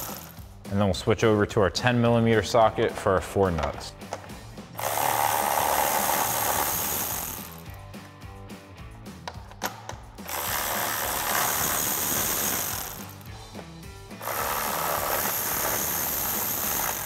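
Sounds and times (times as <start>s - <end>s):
electric ratchet running: 0.0s - 0.5s, 4.8s - 7.8s, 10.2s - 13.4s, 14.2s - 17.0s
background music: 0.0s - 17.0s.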